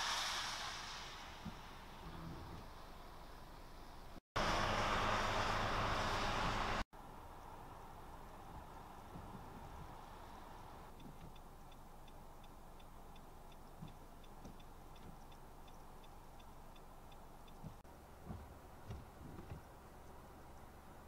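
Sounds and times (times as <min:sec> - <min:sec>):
outdoor hiss: 0:00.0 - 0:18.9
faint regular ticking: 0:10.9 - 0:18.2
soft low thumps: 0:10.9 - 0:19.7.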